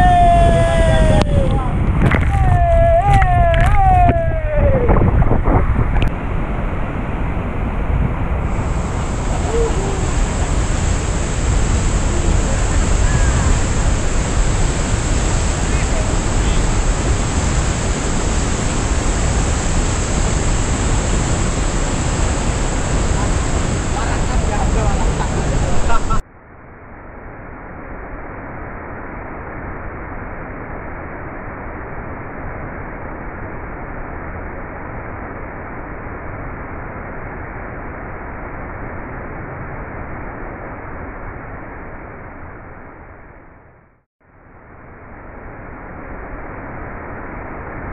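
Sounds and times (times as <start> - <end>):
waterfall rushing: 8.4 - 26.2.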